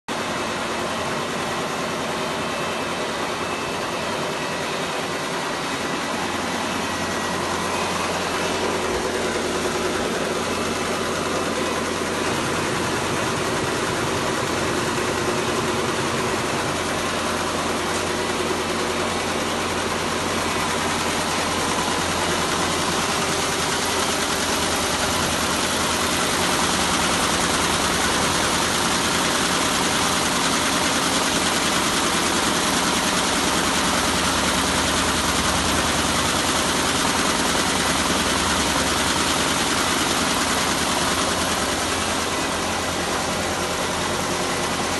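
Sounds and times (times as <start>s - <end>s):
quilting machine stitching: 19.1s - 44.9s.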